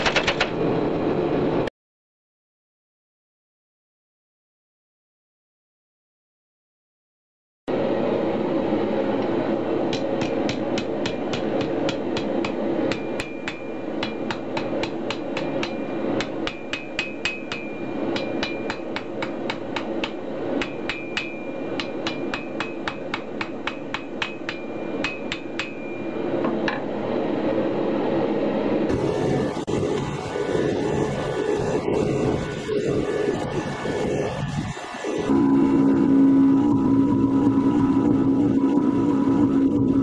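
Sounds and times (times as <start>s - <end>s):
steady background noise: 7.7s - 40.0s
hammer ringing on anvil: 9.9s - 26.8s.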